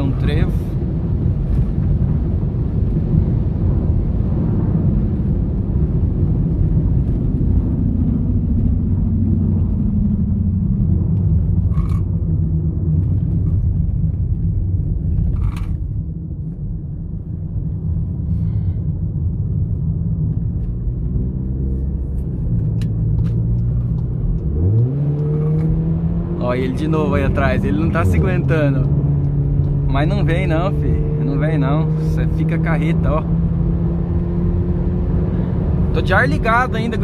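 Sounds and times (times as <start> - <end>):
car engine and road rumble: 0.0 - 37.0.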